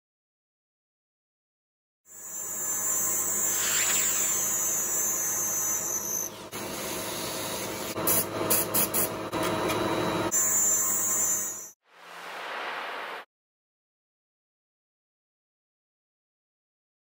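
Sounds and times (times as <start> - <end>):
milling machine motor hum and whine: 2.1 - 11.7.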